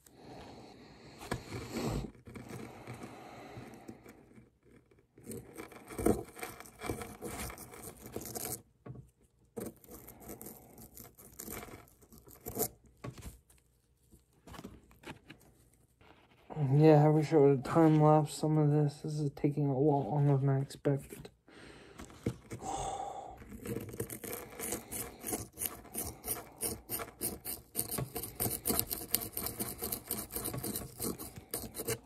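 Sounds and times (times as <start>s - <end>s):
block crumbling and scraping: 23.4s - 32.0s.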